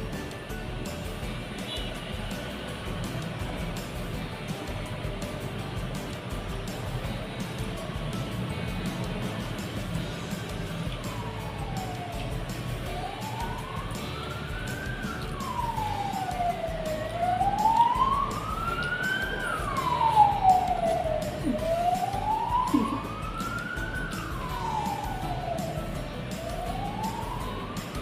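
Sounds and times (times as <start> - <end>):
siren wailing: 10.7 - 28.0.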